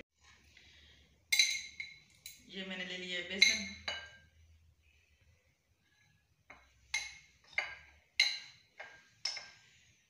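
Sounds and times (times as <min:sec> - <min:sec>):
spoon tapping a glass bowl: 0:06.5 - 0:09.6.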